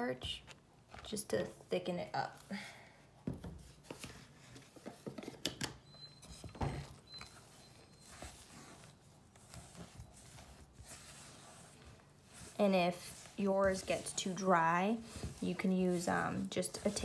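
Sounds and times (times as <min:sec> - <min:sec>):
utensil scraping metal bowl: 0:07.2 - 0:17.0.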